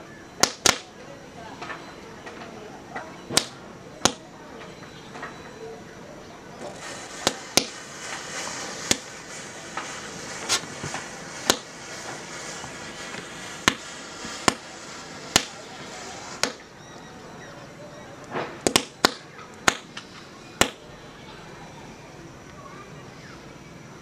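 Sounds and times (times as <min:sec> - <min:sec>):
fizzing hiss of burning matches: 0:00.4 - 0:04.4, 0:06.5 - 0:22.6
match heads cracking: 0:06.6 - 0:14.6, 0:15.3 - 0:15.6.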